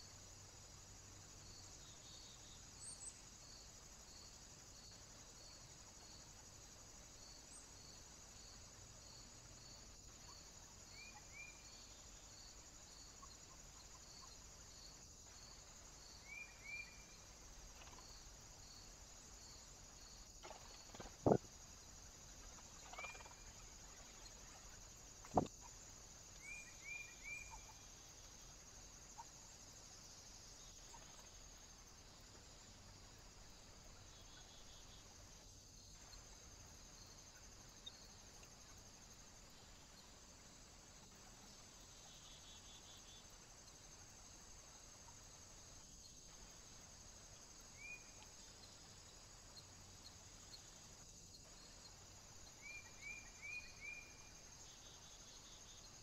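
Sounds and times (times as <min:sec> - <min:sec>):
insect hiss: 0:00.0 - 0:56.0
bird chirps: 0:22.8 - 0:23.6.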